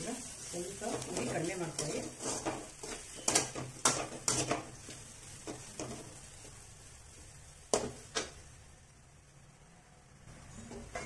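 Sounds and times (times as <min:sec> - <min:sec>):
metal ladle scraping a pan: 0:00.5 - 0:06.1.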